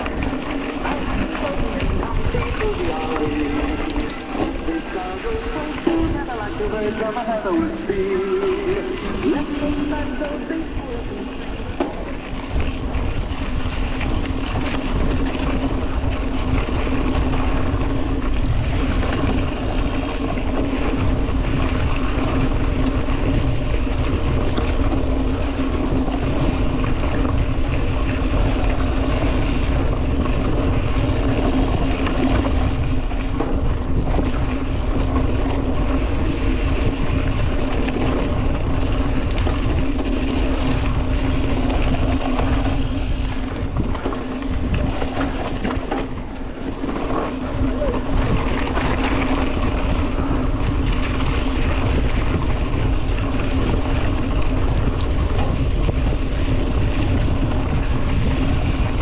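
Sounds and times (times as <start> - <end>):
wind rumble on microphone: 0.0 - 59.0
motor humming: 1.7 - 12.2.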